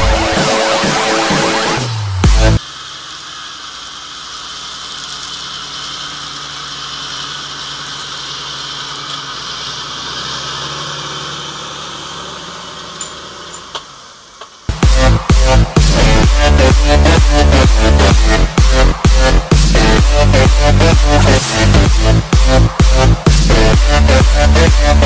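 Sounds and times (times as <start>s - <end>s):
tractor diesel engine under load: 0.0s - 25.0s.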